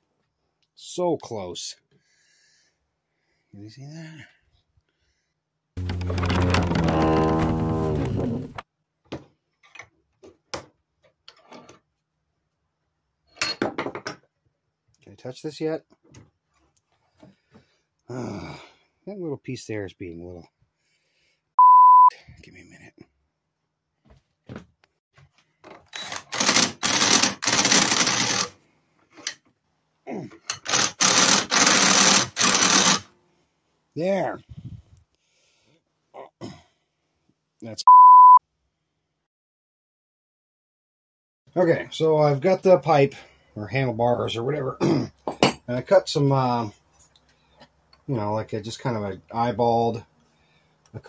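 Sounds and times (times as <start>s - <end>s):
drill trigger blips: 5.8s - 7.6s, 30.6s - 33.0s
loud pitched hum: 5.8s - 8.5s
cordless drill boring into steel: 25.9s - 28.5s, 30.6s - 33.0s.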